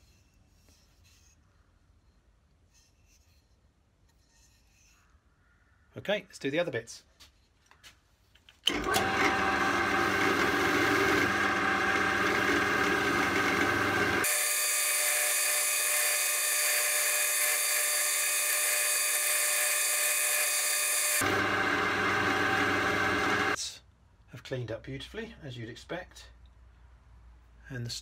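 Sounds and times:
drill spinning polishing wheel: 0:08.7 - 0:23.6.

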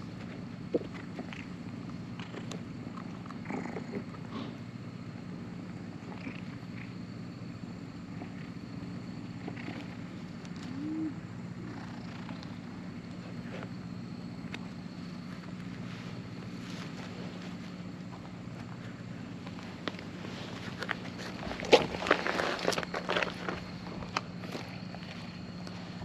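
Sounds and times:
cat purring: 0:02.2 - 0:07.0, 0:08.0 - 0:13.7.

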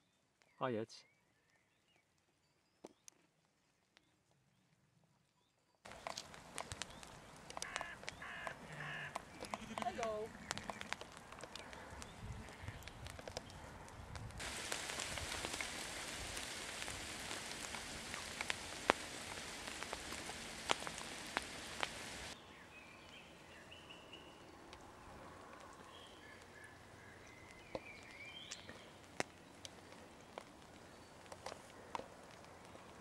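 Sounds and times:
birds chirping faintly: 0:00.0 - 0:13.8, 0:14.4 - 0:33.0
rain pattering: 0:05.9 - 0:22.4, 0:24.7 - 0:33.0.

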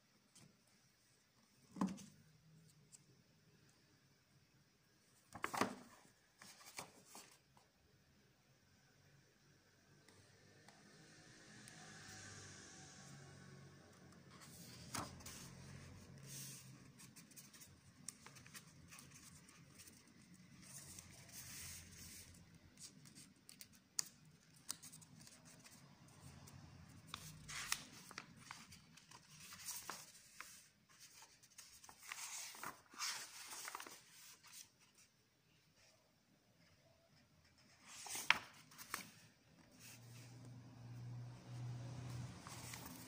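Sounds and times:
book pages turning: 0:05.3 - 0:07.4, 0:14.3 - 0:35.1, 0:37.5 - 0:40.6, 0:41.2 - 0:43.0.

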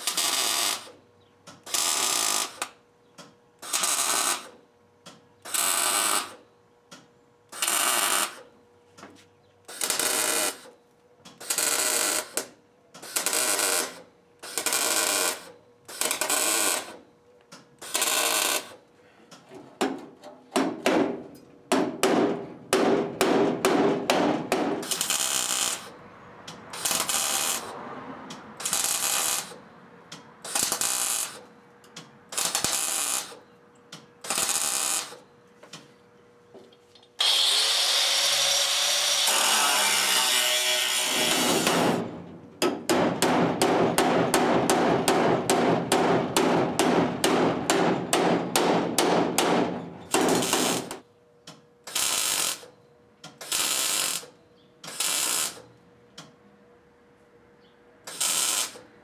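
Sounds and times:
arc welder crackling: 0:00.0 - 0:02.9, 0:03.6 - 0:04.6, 0:05.4 - 0:06.4, 0:07.5 - 0:08.6, 0:09.6 - 0:18.9, 0:23.2 - 0:33.4, 0:34.0 - 0:35.3, 0:37.0 - 0:55.7, 0:58.0 - 0:59.0
sharp metal knocks: 0:20.6 - 0:25.0, 0:41.1 - 0:50.9.

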